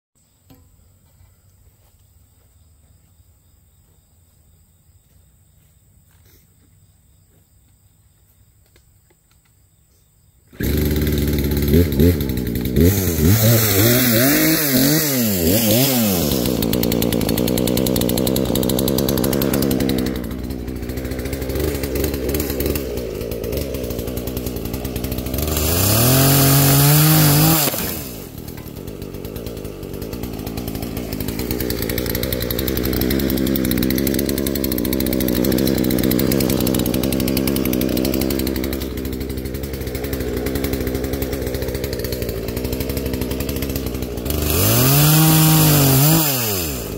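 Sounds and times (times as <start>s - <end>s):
chainsaw revving: 10.5s - 46.9s.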